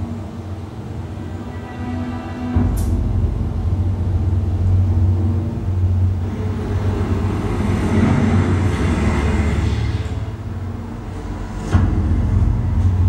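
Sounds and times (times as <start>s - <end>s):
deep vehicle rumble: 2.5s - 13.0s
truck engine rushing: 2.6s - 13.0s.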